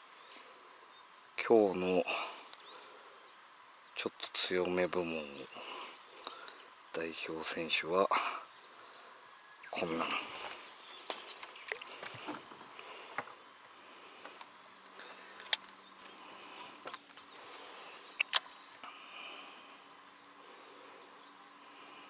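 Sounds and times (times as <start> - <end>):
faint insects: 0.0 - 22.0.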